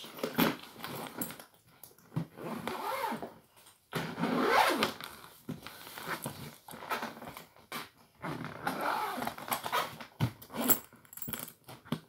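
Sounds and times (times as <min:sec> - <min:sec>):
suitcase zipper pulled: 0:02.4 - 0:03.2, 0:04.0 - 0:05.2, 0:08.2 - 0:10.9.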